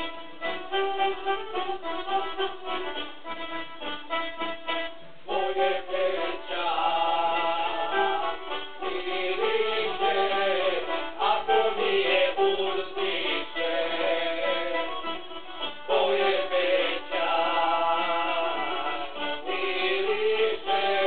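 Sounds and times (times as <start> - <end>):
person singing folk song: 4.6 - 21.0.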